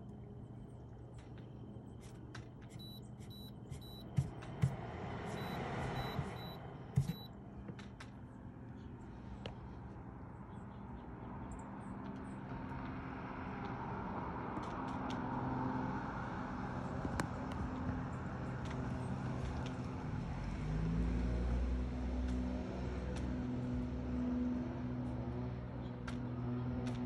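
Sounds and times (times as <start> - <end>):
cars passing: 3.8 - 7.3, 12.0 - 27.0.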